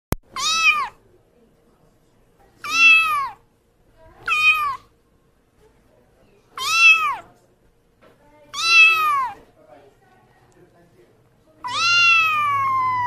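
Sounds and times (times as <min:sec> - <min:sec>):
kitten meowing: 0:00.3 - 0:01.0, 0:02.6 - 0:03.4, 0:04.2 - 0:04.9, 0:06.6 - 0:07.3, 0:08.5 - 0:09.4, 0:11.6 - 0:13.0.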